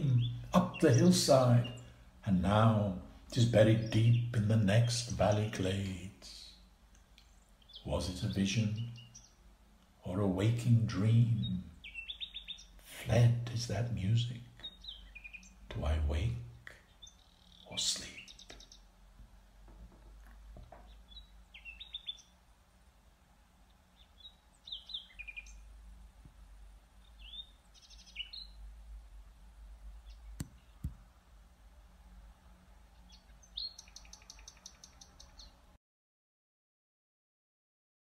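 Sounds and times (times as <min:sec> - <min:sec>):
nightingale singing: 0:00.0 - 0:09.4, 0:10.0 - 0:18.9, 0:20.8 - 0:22.4, 0:23.6 - 0:25.8, 0:27.0 - 0:28.7, 0:29.9 - 0:31.0, 0:32.9 - 0:35.6
low steady rumble: 0:00.0 - 0:34.2.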